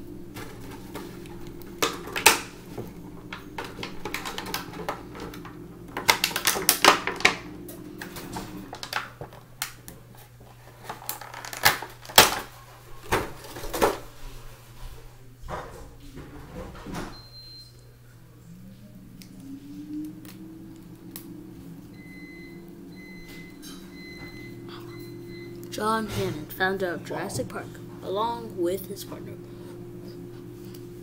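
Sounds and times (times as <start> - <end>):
plastic packaging crinkling and clicking: 3.2 - 7.4, 8.0 - 14.0.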